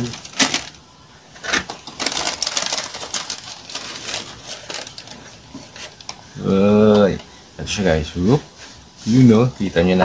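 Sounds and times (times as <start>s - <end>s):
cardboard box crinkling: 1.4s - 6.1s.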